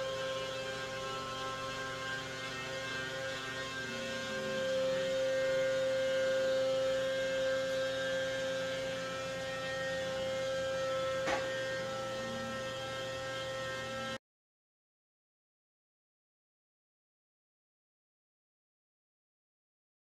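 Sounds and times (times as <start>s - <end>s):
steady electrical hum: 0.0s - 14.2s.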